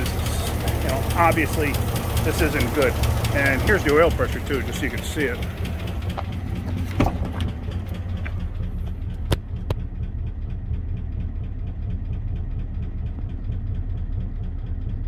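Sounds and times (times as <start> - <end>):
engine idling with tapping: 0.0 - 15.0.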